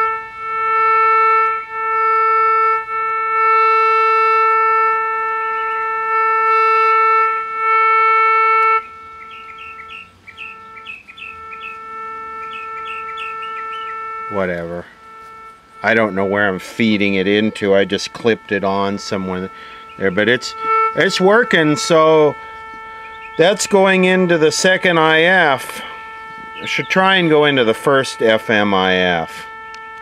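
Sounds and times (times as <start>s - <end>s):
buzzy radio test tone: 0.0s - 30.0s
small chirping whistles: 8.6s - 17.6s, 19.1s - 23.9s.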